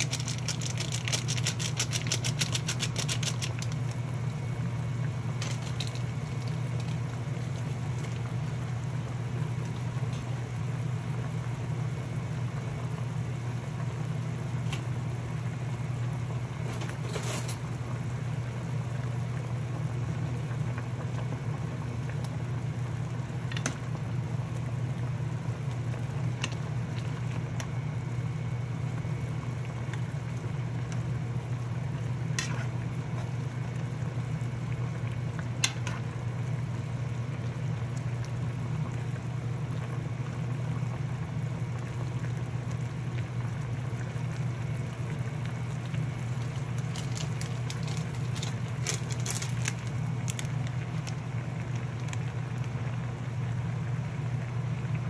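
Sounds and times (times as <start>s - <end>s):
water bubbling at a boil: 0.0s - 16.7s, 17.8s - 55.0s.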